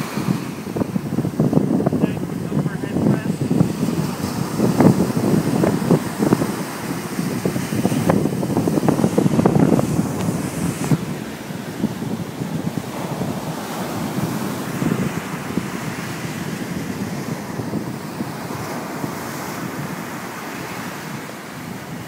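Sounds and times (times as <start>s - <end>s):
ocean surf breaking: 0.0s - 22.0s
wind on microphone: 0.0s - 22.0s.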